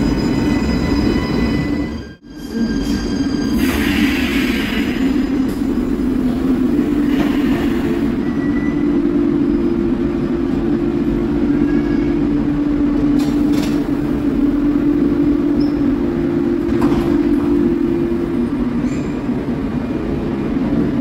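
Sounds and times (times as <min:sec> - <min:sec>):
light-rail car humming: 0:00.0 - 0:21.0.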